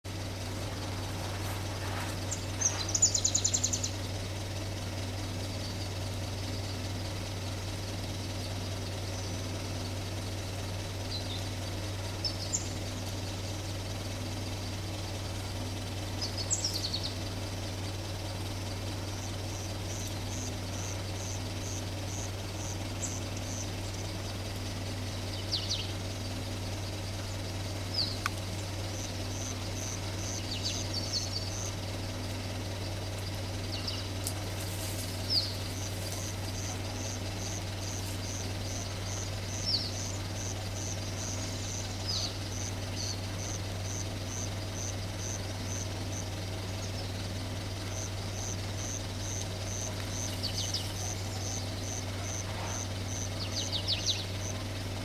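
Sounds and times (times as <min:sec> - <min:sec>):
steady low hum: 0:00.0 - 0:55.0
bird chirps and calls: 0:00.6 - 0:04.1, 0:11.0 - 0:13.0, 0:16.1 - 0:17.3, 0:19.1 - 0:31.9, 0:32.7 - 0:34.2, 0:35.1 - 0:47.3, 0:47.9 - 0:54.6.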